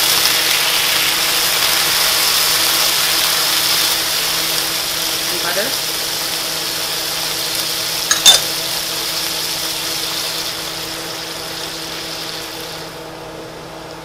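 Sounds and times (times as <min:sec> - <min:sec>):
food sizzling in a skillet: 0:00.0 - 0:14.0
spatula clinking against pan: 0:08.1 - 0:08.5.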